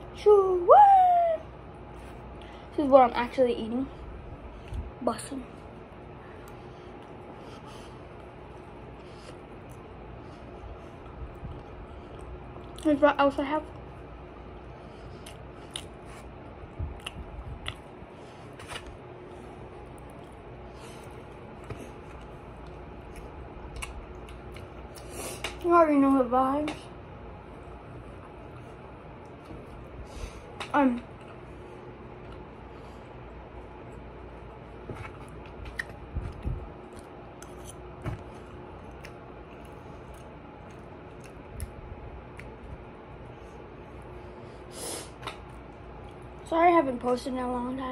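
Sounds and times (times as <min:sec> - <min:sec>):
person chewing food: 0:05.9 - 0:12.9, 0:13.8 - 0:25.6, 0:27.4 - 0:44.4
chewing mouth noises: 0:15.0 - 0:19.0, 0:19.8 - 0:25.7, 0:35.2 - 0:42.8.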